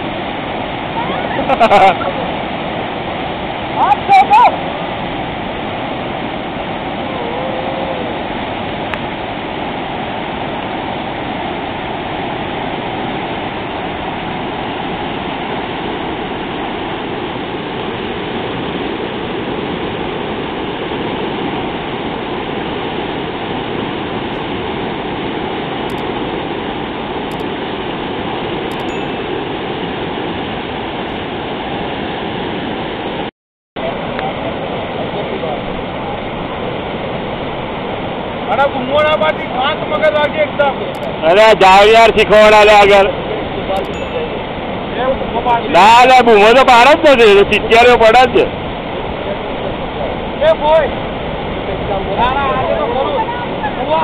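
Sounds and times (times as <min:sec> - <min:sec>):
river rapids rushing: 0:00.0 - 0:33.2.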